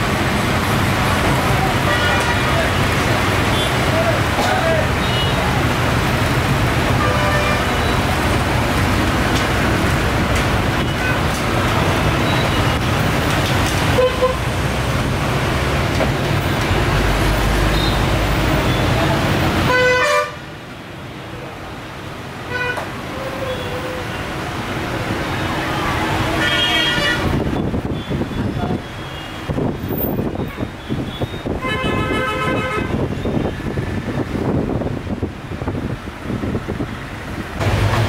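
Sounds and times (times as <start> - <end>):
street traffic rumble: 0.0 - 38.0
car horns tooting: 1.6 - 5.6, 6.9 - 8.3, 13.8 - 14.5, 19.6 - 20.4, 22.5 - 24.2, 25.6 - 29.6, 30.2 - 33.6.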